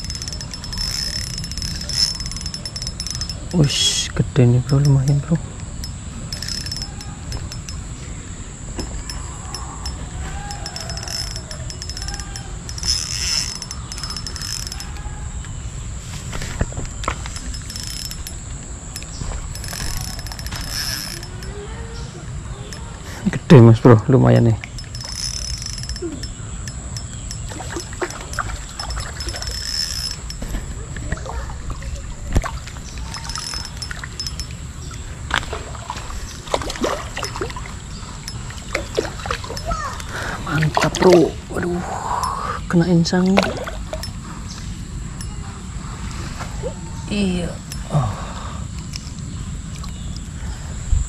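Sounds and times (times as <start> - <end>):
fishing reel clicking and ratcheting: 0.0 - 15.6, 16.3 - 31.1, 32.9 - 35.4, 36.8 - 41.2, 44.0 - 44.6
river running: 0.0 - 46.4
fish splashing: 24.6 - 41.5.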